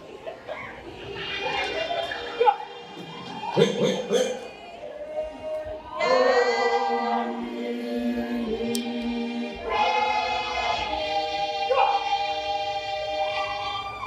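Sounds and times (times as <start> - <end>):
group of voices singing: 3.1 - 14.0.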